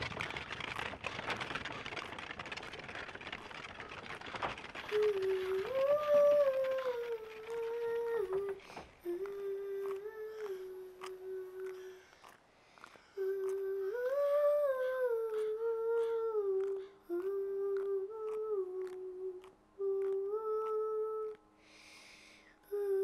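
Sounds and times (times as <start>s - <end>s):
girl humming a slow melody: 4.9s - 12.2s, 12.8s - 21.5s, 22.5s - 23.0s.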